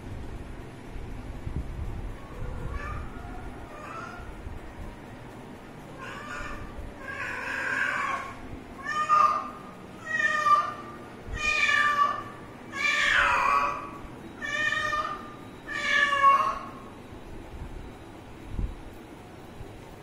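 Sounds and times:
kitten meowing: 6.0 - 16.8.

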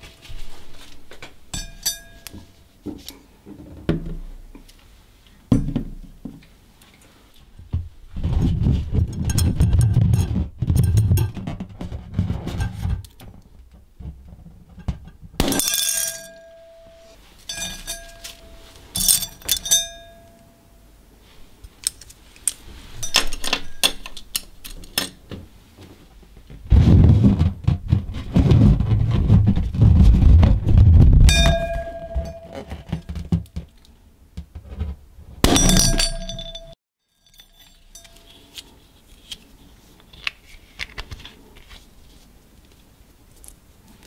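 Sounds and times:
objects clinking on glass bowl: 1.5 - 2.6, 15.5 - 20.5, 31.3 - 32.8, 35.5 - 38.5.

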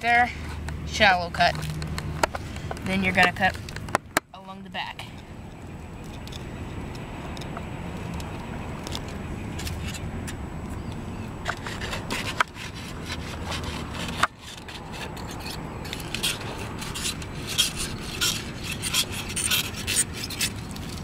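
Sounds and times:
knife scraping fish: 11.4 - 21.0.

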